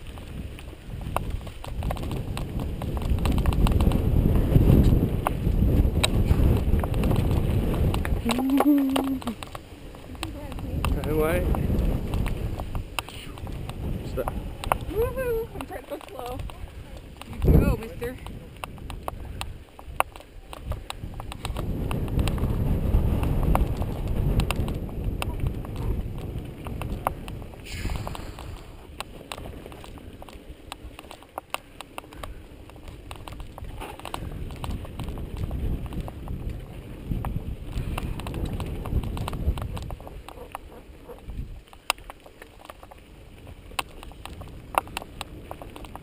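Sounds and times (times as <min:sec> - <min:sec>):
bike rattling clicks: 0:00.0 - 0:46.0
tyres rumbling on dirt: 0:00.0 - 0:46.0
wind on microphone: 0:00.0 - 0:46.0.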